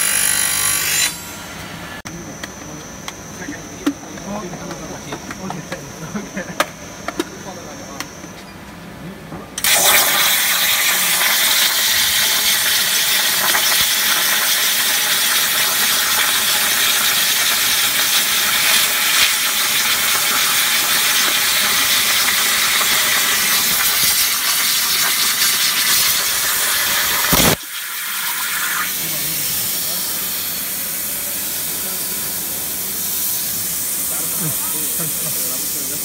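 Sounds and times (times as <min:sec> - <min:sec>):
plasma cutter hissing: 0:09.6 - 0:36.0.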